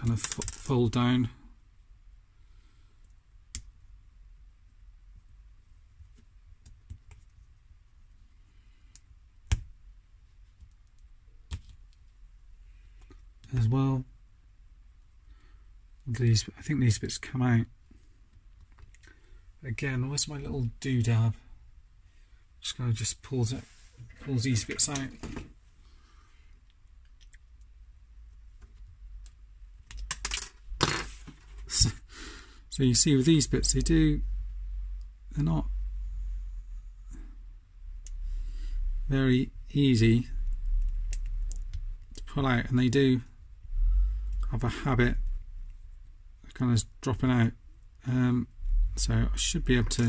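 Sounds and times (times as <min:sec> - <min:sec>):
plastic toy parts clicking: 0:00.1 - 0:00.7.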